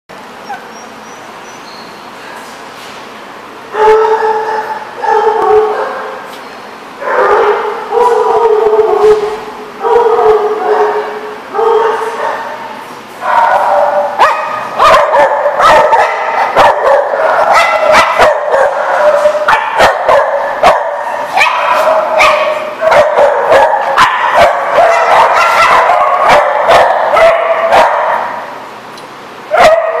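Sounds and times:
small dogs barking and yipping: 0.4 - 1.4, 13.2 - 28.4, 29.5 - 30.0
dogs howling: 3.7 - 6.2, 7.0 - 12.6, 13.3 - 28.4.

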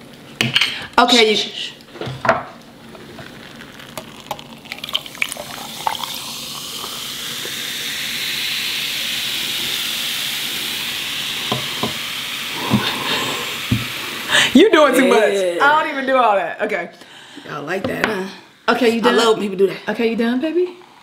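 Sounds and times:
soda fizzing: 2.8 - 14.6
ice clicking in glass: 3.5 - 7.0.

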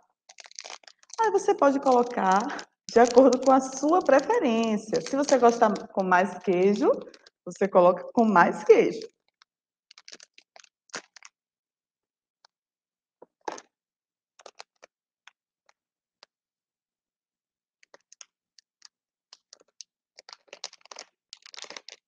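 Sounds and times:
plastic packet crinkling: 0.1 - 11.4, 13.2 - 13.7, 14.4 - 15.4, 17.8 - 22.0.

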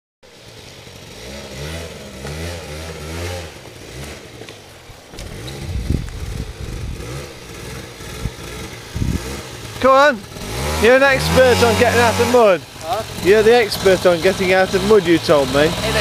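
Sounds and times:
quad bike engine revving: 0.3 - 16.0.

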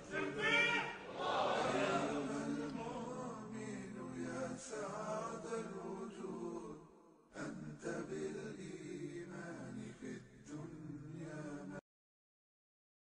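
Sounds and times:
voices chanting long notes: 0.0 - 6.7.

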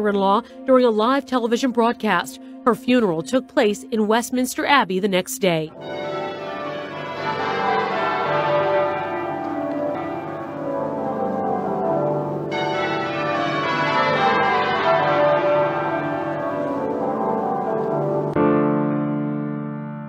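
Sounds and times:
church bells pealing: 5.7 - 18.4.

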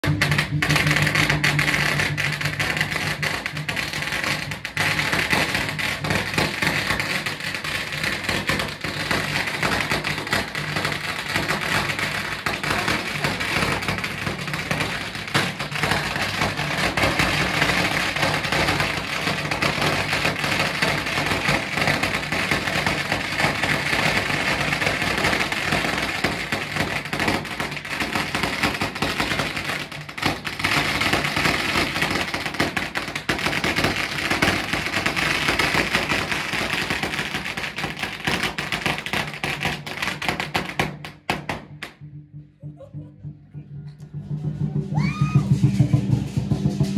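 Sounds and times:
firecrackers crackling: 0.0 - 42.0, 44.0 - 46.9.

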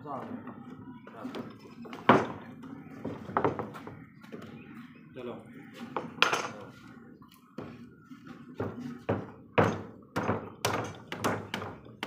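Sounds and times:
wooden knocks and thunks: 0.2 - 4.5, 8.5 - 12.0.

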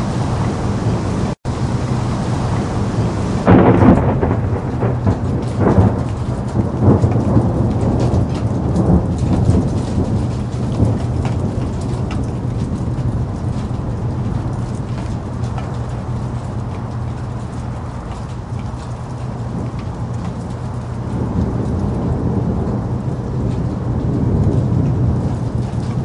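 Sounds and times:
heavy rain: 0.0 - 26.0
thunder rumbling: 0.0 - 26.0.

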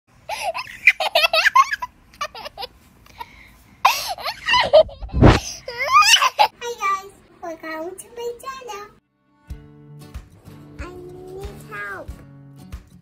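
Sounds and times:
child giggling: 0.3 - 2.7, 3.9 - 6.6.

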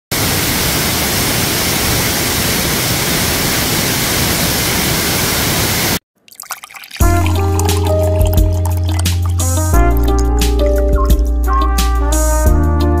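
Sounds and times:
waterfall pouring over rock: 6.3 - 10.8.

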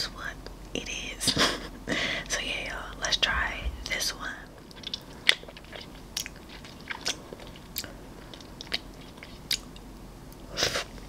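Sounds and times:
crisp chewing crunches: 4.5 - 9.8.

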